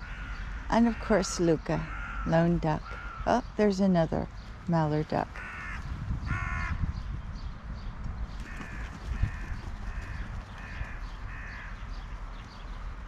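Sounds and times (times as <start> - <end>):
crows cawing: 0.0 - 3.4, 5.4 - 6.8, 8.4 - 11.8.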